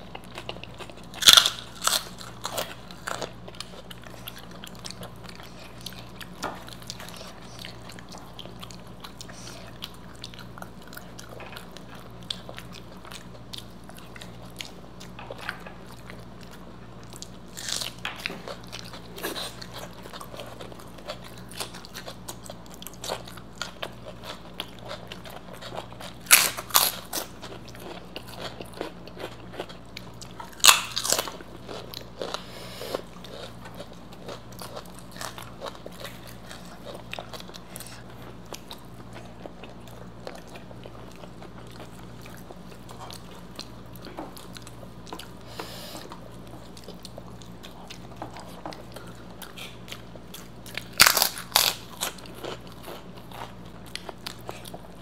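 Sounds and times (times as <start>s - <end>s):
crunching crisp snacks: 0.0s - 55.0s
faint low hum: 0.0s - 55.0s.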